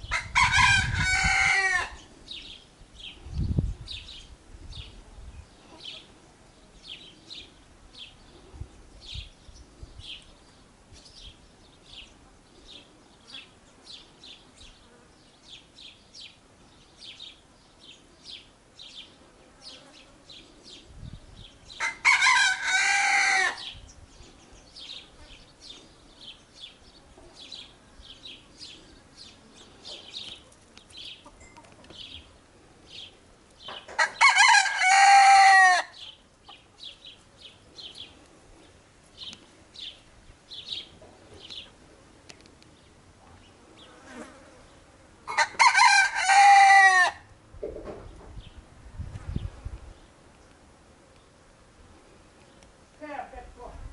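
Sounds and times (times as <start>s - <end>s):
rooster crowing: 0.1s - 2.0s, 21.8s - 23.7s, 34.0s - 36.0s, 45.3s - 47.3s.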